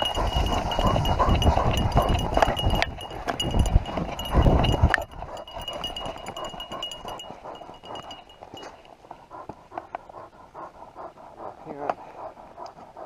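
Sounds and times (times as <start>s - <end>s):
collar tags jingling: 0.0s - 9.4s
paws galloping on snow: 0.0s - 13.0s.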